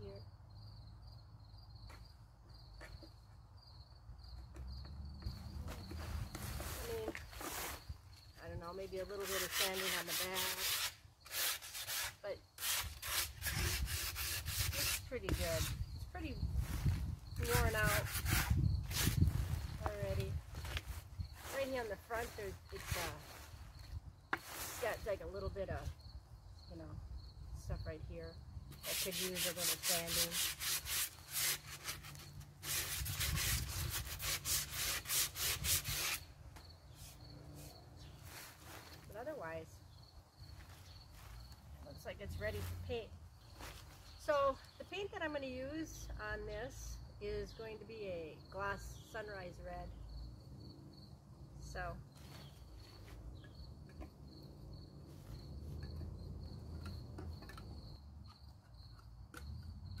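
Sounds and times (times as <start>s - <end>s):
cricket chirring: 0.0s - 9.3s, 14.0s - 29.6s, 30.2s - 45.0s, 47.0s - 60.0s
sandpaper on wood: 9.2s - 15.8s, 17.5s - 19.2s, 28.8s - 36.2s.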